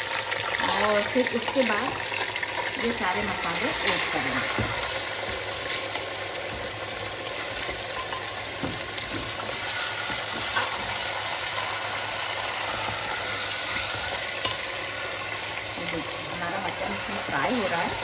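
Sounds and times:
meat sizzling in hot oil: 0.0 - 18.0
spatula knocking and scraping pot: 3.1 - 11.7.

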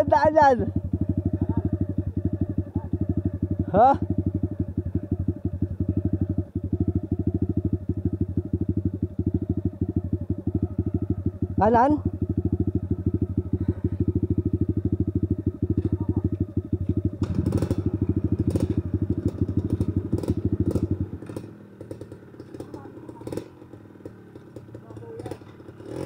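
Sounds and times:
dirt bike engine running: 0.0 - 26.0.

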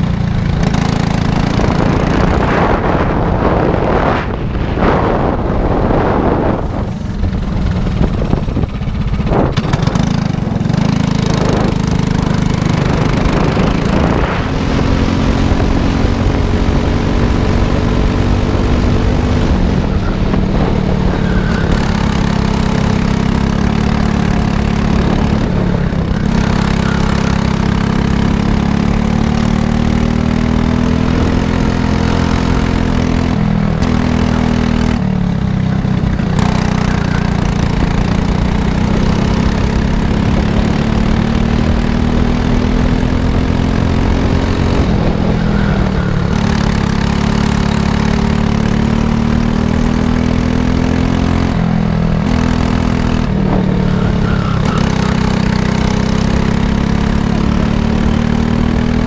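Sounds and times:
go-kart engine running hard: 0.0 - 59.0.

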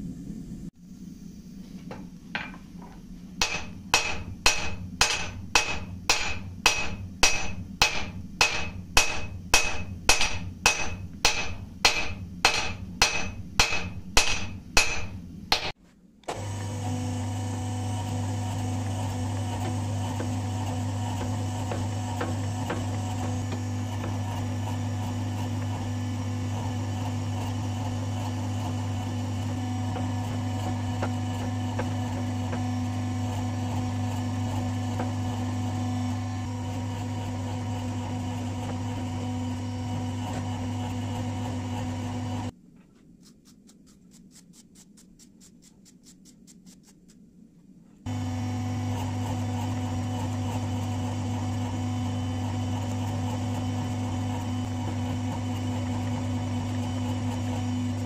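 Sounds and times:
hammer striking metal on anvil: 3.4 - 15.8
electric motor humming: 16.3 - 42.5, 48.1 - 58.0.

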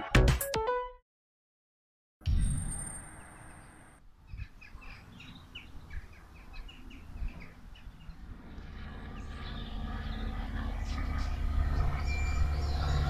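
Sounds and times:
small birds chirping: 3.2 - 8.3, 9.0 - 13.0
low outdoor rumble: 5.5 - 13.0.

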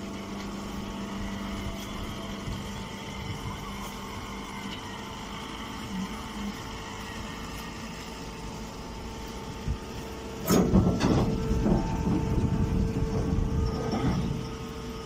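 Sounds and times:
baling machine humming: 0.0 - 15.0
loud clattering and rattling: 10.5 - 14.4.

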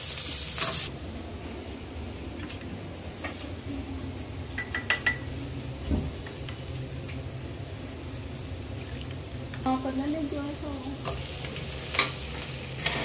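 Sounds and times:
spoon clinking against glass bowl: 4.6 - 5.3.

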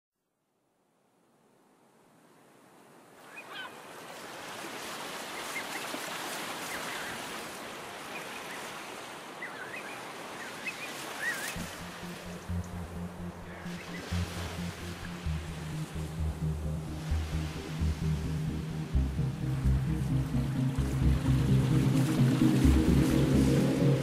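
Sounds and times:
sea surf washing: 3.2 - 24.0
birds wavering calls: 9.4 - 12.4
music: 11.5 - 24.0.

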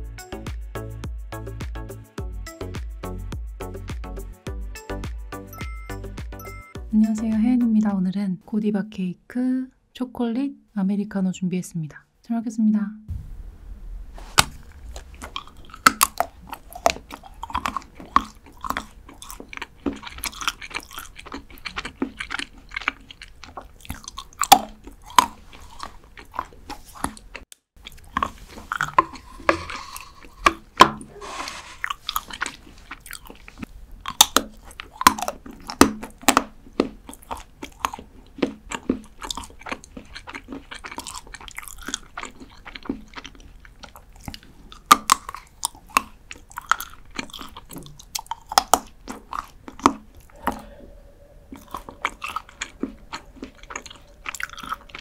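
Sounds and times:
crisp crunching chews: 14.3 - 55.0
chocolate bar snapping bites: 34.1 - 39.4, 44.3 - 50.0.

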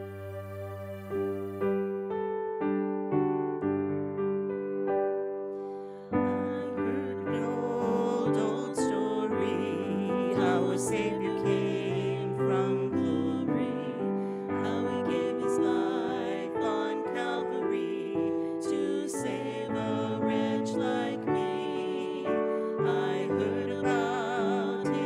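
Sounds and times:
woman singing a hymn: 6.1 - 25.0.

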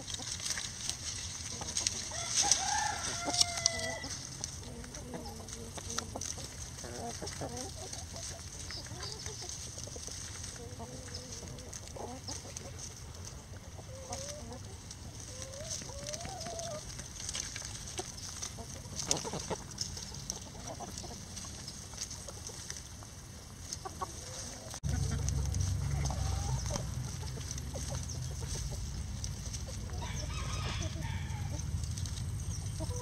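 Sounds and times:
chickens clucking softly: 0.0 - 33.0
scratching in dry leaves: 0.0 - 33.0
steady low rumble: 24.7 - 33.0.

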